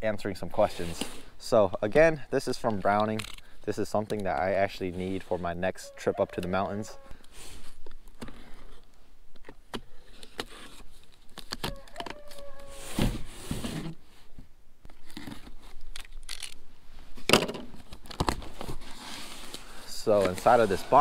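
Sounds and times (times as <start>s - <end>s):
knife slitting packing tape: 15.9s - 16.6s.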